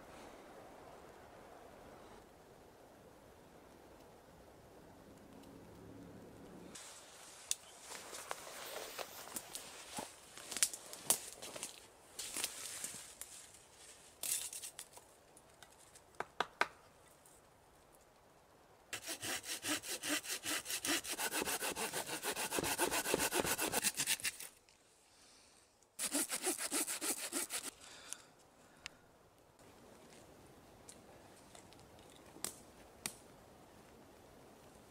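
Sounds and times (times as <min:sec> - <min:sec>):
hand saw cutting branch: 0:19.0 - 0:24.6, 0:26.0 - 0:27.8.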